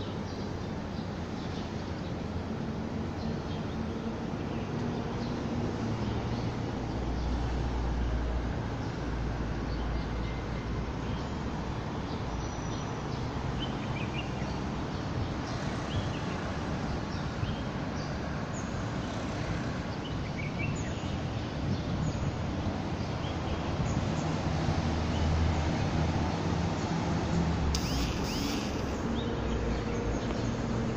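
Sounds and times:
city traffic noise: 0.0s - 30.9s
bird chirps: 27.8s - 29.8s.

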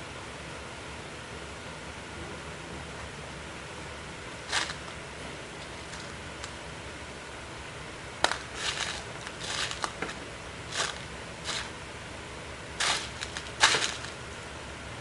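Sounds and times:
scraping and rustling: 4.4s - 5.0s, 5.6s - 6.5s, 8.2s - 11.8s, 12.8s - 14.3s.

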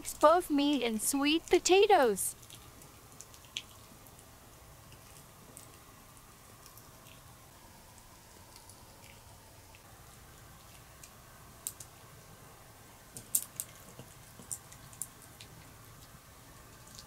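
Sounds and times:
dog crunching chew stick: 2.4s - 4.3s, 4.9s - 9.9s.

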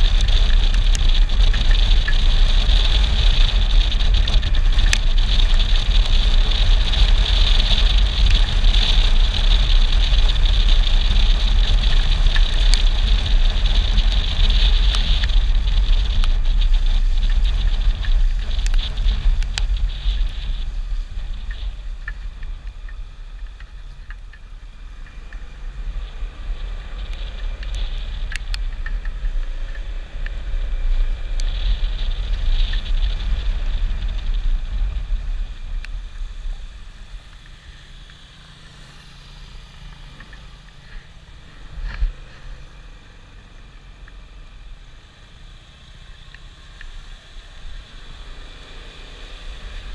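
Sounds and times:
wind and engine rumble: 0.0s - 49.9s.

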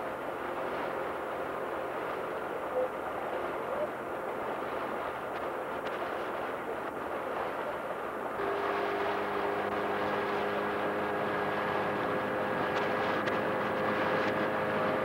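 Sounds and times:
outboard motor running: 0.0s - 15.0s
water noise: 0.0s - 15.0s.

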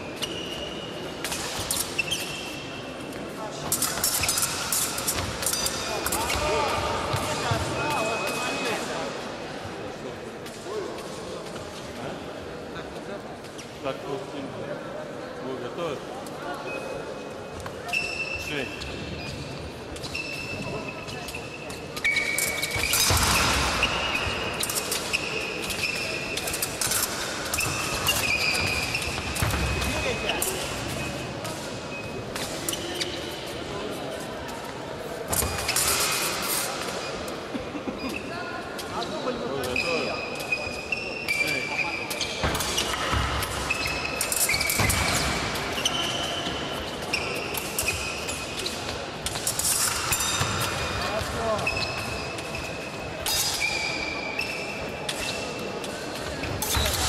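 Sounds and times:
shoe soles squeaking: 0.0s - 8.8s, 16.6s - 33.7s, 34.5s - 57.0s
fencing blades clicking: 3.7s - 6.3s.

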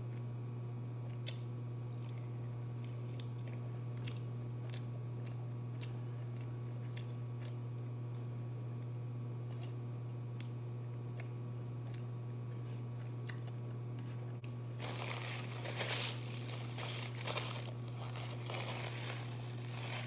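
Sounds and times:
quiet chewing: 1.0s - 8.3s, 9.4s - 14.6s
low hum: 11.5s - 20.0s
paper napkin crinkling: 14.8s - 20.0s.

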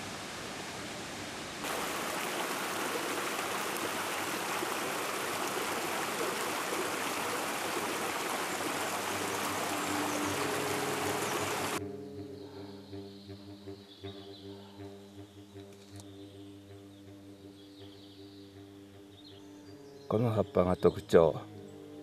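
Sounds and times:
mountain stream rushing over boulders: 0.0s - 11.8s.

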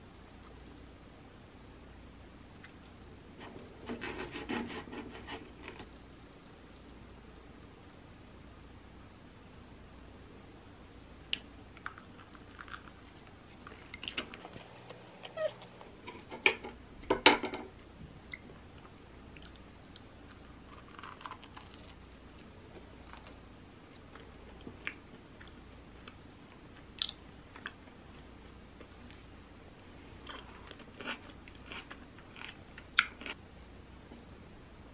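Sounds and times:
biting and chewing crunchy toast: 20.3s - 23.4s, 30.3s - 33.4s.

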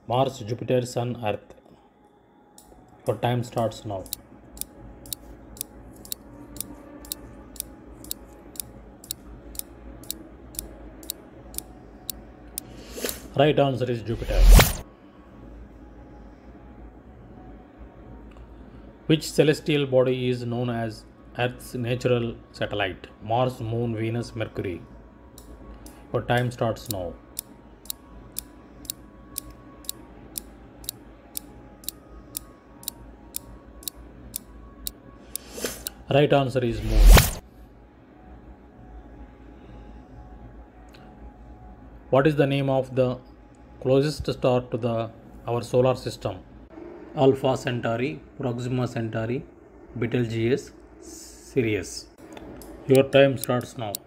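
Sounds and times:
timer ticking: 3.1s - 12.7s, 25.4s - 35.5s
countdown timer ticking: 25.4s - 36.0s.

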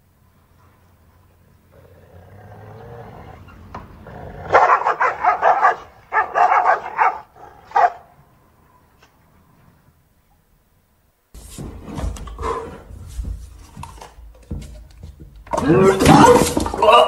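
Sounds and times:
dogs growling: 1.6s - 8.0s
dogs barking: 4.3s - 8.2s.

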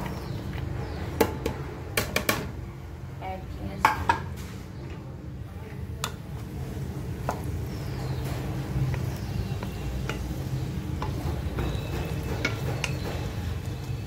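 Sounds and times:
onions frying in oil: 5.9s - 14.0s.

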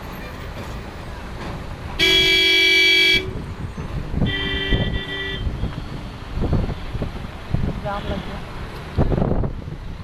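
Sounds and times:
low rumble of passing traffic: 0.0s - 10.0s
vehicle horn blasts: 2.0s - 3.4s, 4.2s - 5.8s.

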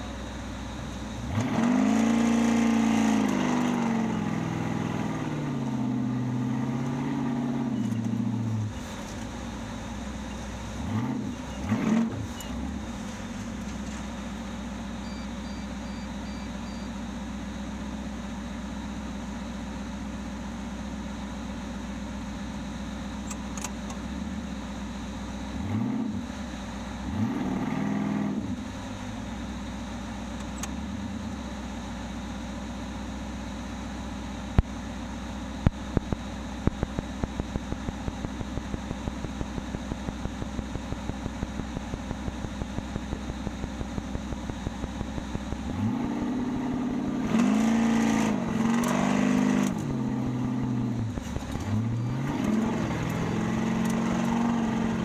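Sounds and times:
car engine revving: 0.9s - 14.1s, 25.6s - 29.2s, 35.7s - 55.0s.

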